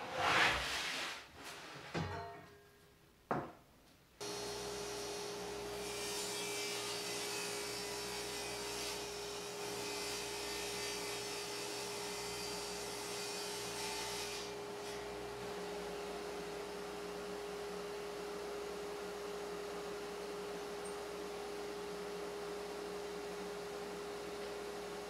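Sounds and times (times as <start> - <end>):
knock: 3.3 - 3.6.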